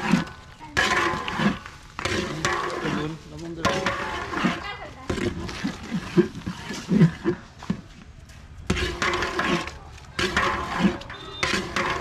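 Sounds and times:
metal paddle scraping a metal pot: 0.0 - 7.8, 8.6 - 12.0
voices talking: 2.1 - 5.9, 10.9 - 11.5.

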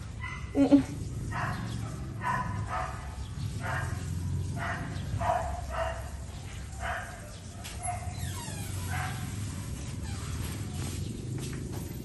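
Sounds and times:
dog barking: 0.2 - 0.6, 1.3 - 9.4.

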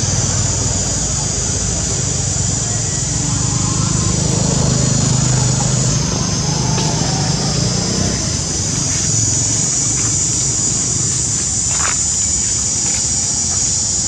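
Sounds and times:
constant high hiss: 0.0 - 14.0
low engine-like rumble: 0.0 - 14.0.

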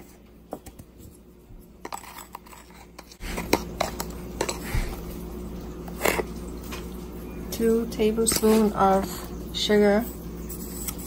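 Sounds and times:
spoon scraping containers: 1.8 - 5.2, 5.8 - 6.9, 8.2 - 11.0.

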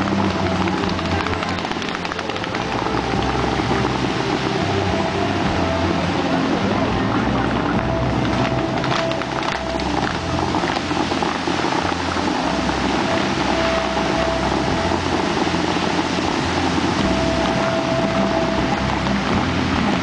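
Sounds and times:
fountain water jets rushing: 0.0 - 20.0
sharp crackles: 0.0 - 20.0.

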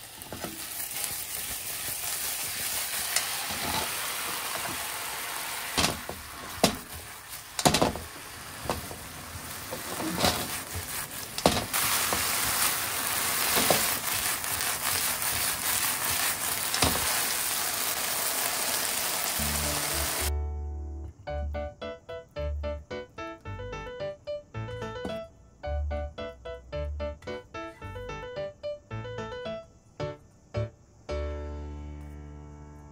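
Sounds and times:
food sizzling in frying pan: 0.0 - 20.3
utensil knocking against pan: 5.8 - 7.0, 7.6 - 9.0
piano music: 18.8 - 32.9.

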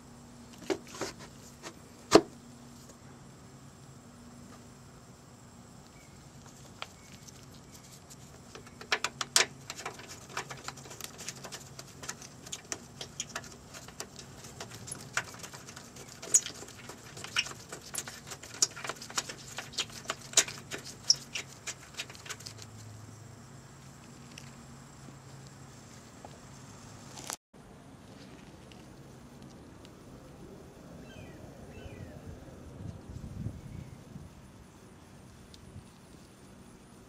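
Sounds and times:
gloved hand handling plastic parts: 6.4 - 22.7.

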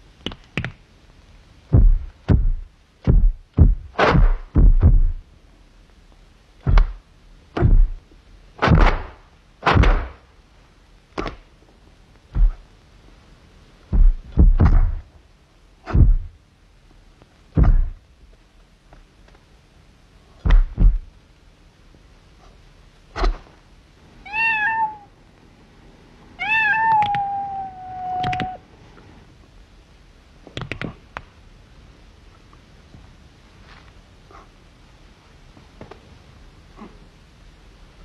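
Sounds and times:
sharp thuds and cracks: 1.7 - 5.2, 6.6 - 7.0, 8.6 - 10.2, 13.9 - 15.1, 17.6 - 18.0, 20.4 - 21.1.

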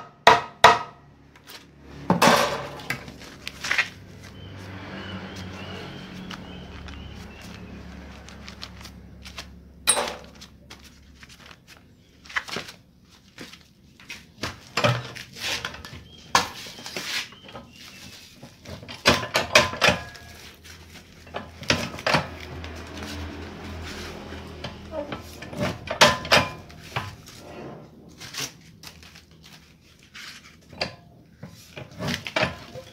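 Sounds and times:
paper rustling: 1.4 - 1.8, 2.6 - 19.2, 20.0 - 25.4, 26.6 - 27.4, 28.1 - 32.9
scissors snipping paper: 6.3 - 11.5.

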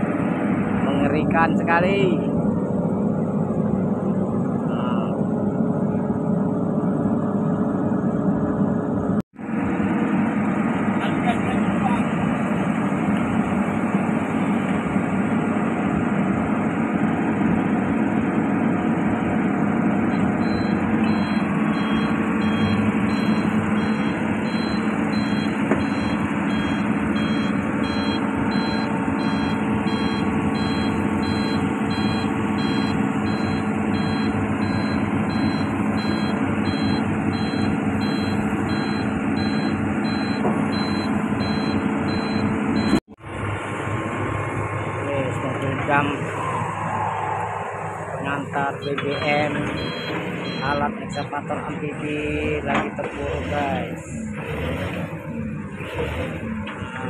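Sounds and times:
diesel engine running: 0.0 - 57.0
backup alarm beeping: 20.1 - 43.0, 48.4 - 51.5.

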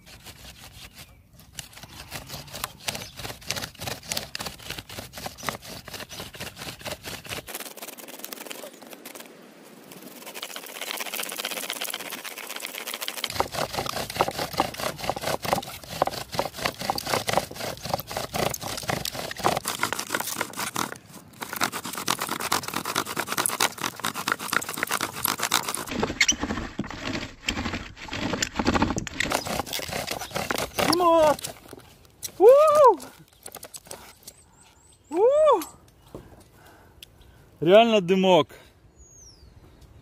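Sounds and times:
bow drill spindle squeaking: 26.0 - 26.6.

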